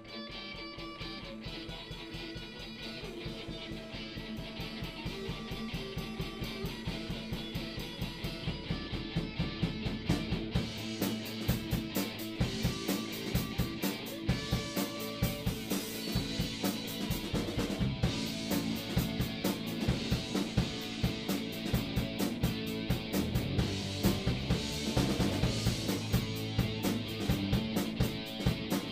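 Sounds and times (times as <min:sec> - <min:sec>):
bass guitar: 0:00.0 - 0:28.9
electric guitars: 0:00.0 - 0:28.9
drum kit beat: 0:00.1 - 0:28.9.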